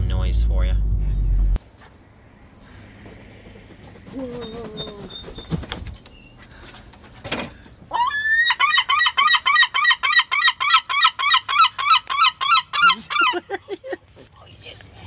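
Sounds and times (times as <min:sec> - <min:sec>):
gull laughing cries: 0:04.1 - 0:05.2, 0:07.9 - 0:10.4, 0:12.5 - 0:13.6.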